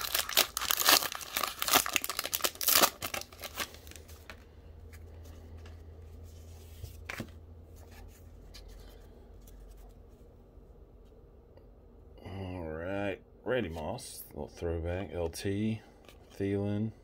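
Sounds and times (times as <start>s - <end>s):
plastic wrapper crinkling and tearing: 0.0s - 4.4s
cards being handled: 0.0s - 10.3s, 16.0s - 16.6s.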